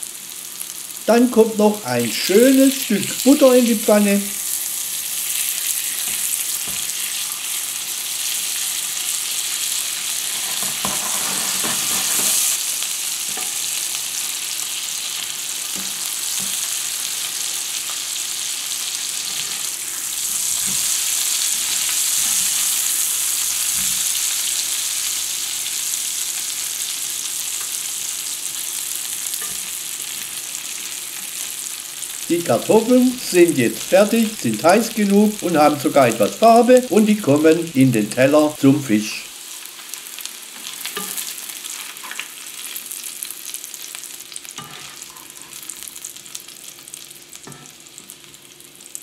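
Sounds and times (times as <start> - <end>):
potatoes sizzling in a frying pan: 0.0 - 49.0.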